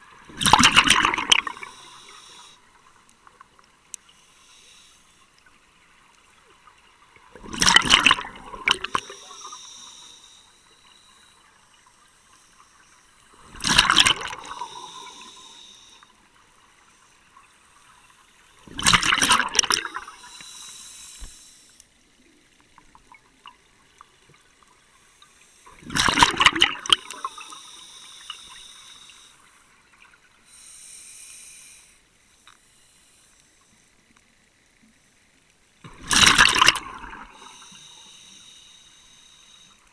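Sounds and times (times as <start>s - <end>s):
exhaled bubbles underwater: 0.0s - 1.9s, 7.2s - 9.6s, 13.3s - 15.6s, 18.6s - 20.3s, 25.7s - 28.3s, 35.9s - 37.7s
regulator hiss: 1.5s - 3.0s, 4.1s - 5.4s, 8.8s - 13.6s, 14.4s - 16.3s, 19.8s - 22.0s, 27.0s - 29.8s, 30.4s - 33.9s, 37.2s - 39.9s.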